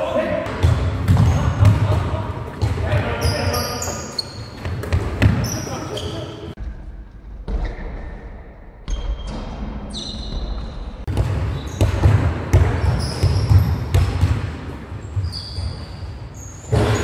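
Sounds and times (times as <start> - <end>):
basketball bouncing: 0.4 - 3.1, 4.5 - 5.5, 10.4 - 15.8
sneakers squeaking on court floor: 0.4 - 6.6, 8.9 - 17.0.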